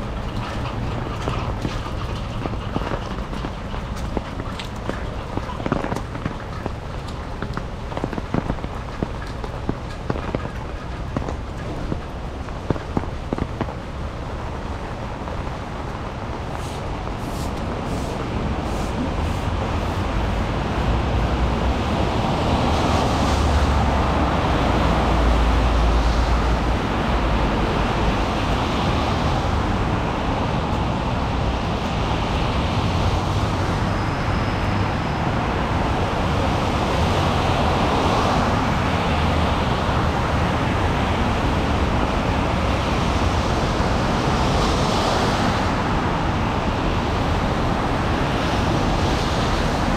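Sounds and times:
low engine rumble: 0.0 - 36.6
tyres hissing on wet road: 0.0 - 49.9.

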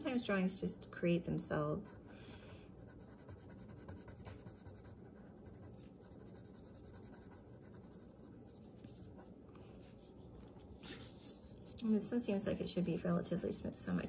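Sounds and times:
pencil scratching on paper: 2.4 - 10.2, 10.8 - 14.0.

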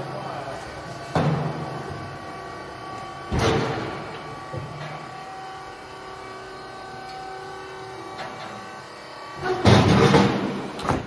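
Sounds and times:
forklift motor whine: 0.0 - 11.0.

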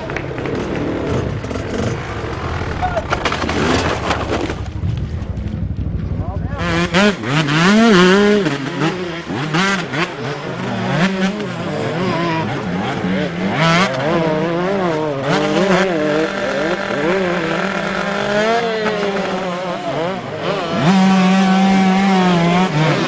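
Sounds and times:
dirt bike engines revving: 0.0 - 23.0.

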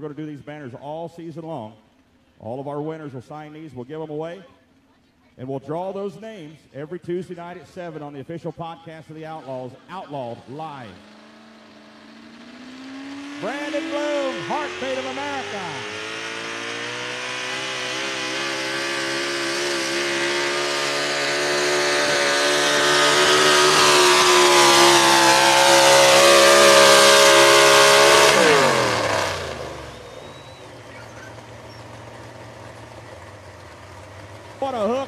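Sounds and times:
truck engine running hard under load: 10.1 - 35.0.

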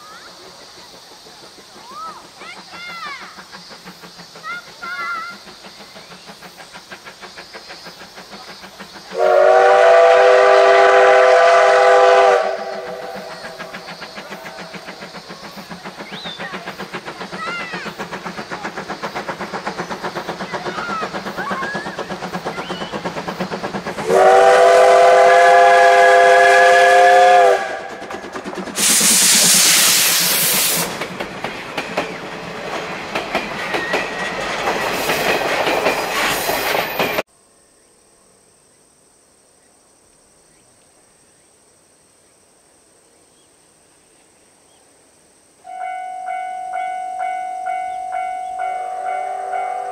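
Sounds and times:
locomotive exhaust chuffing: 0.0 - 37.2
steam hissing: 0.0 - 37.3
train wheels clacking over rail joints: 0.0 - 37.3
steam whistle blasts: 9.1 - 13.6, 24.0 - 28.0, 28.8 - 30.9, 45.7 - 49.9.

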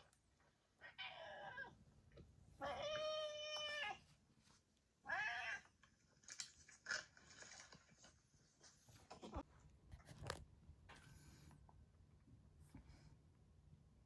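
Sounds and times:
cat meowing: 2.6 - 4.0, 5.0 - 5.7.

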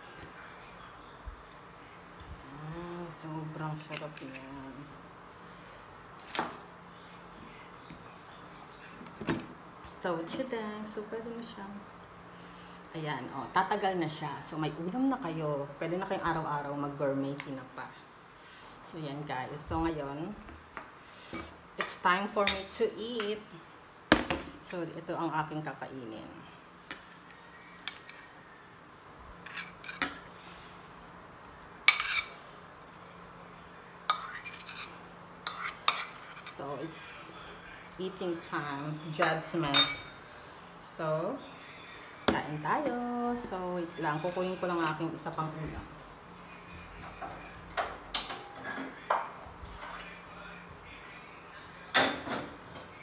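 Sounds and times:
metal spoon clinking on plates: 29.4 - 30.3, 31.9 - 32.4, 34.1 - 36.6, 39.6 - 40.1.

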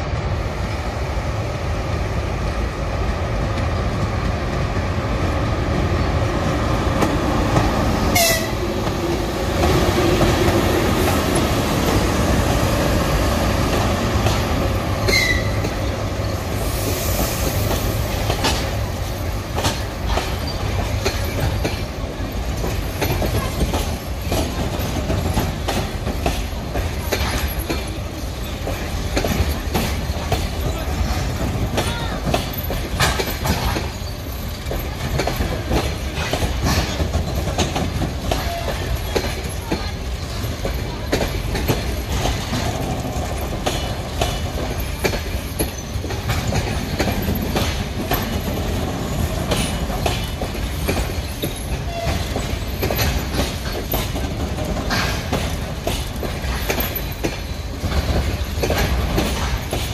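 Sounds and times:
train coaches rumbling past: 0.0 - 59.9
wheels clattering over rail joints: 17.4 - 59.9.

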